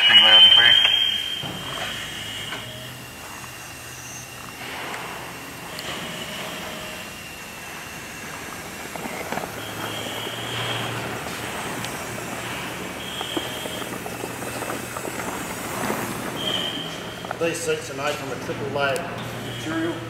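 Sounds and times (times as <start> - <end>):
short whistle-like tone: 0.4 - 2.9, 16.3 - 17.2.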